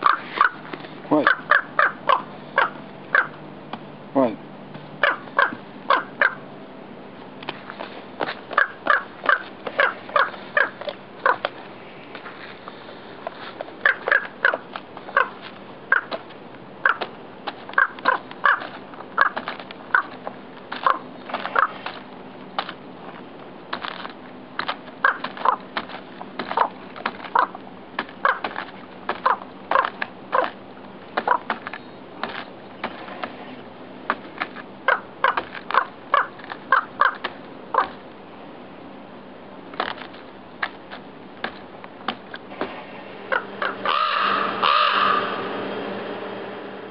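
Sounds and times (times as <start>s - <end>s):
raven drawn-out call: 0.0s - 3.4s, 5.0s - 6.4s, 8.5s - 11.5s, 13.8s - 16.2s, 16.8s - 17.1s, 17.7s - 20.2s, 20.8s - 21.9s, 25.0s - 25.6s, 26.5s - 27.6s, 28.2s - 28.6s, 29.2s - 30.6s, 31.2s - 31.5s, 34.8s - 38.0s, 43.2s - 45.9s
raven knocking calls: 0.0s - 3.8s, 5.0s - 6.5s, 8.2s - 12.4s, 13.2s - 22.0s, 23.7s - 38.1s, 41.4s - 45.6s.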